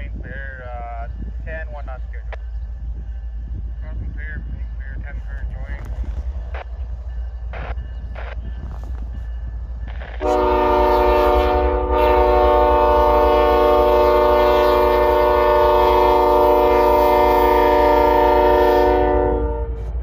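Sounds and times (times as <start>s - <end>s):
locomotive air horn chord: 10.2s - 19.9s.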